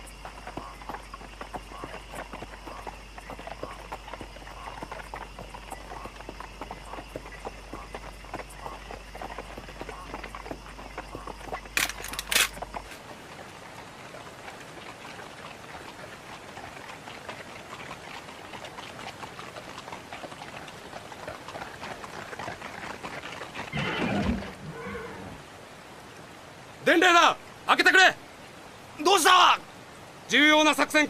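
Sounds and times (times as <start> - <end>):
horse whinnying: 23.5 - 25.4.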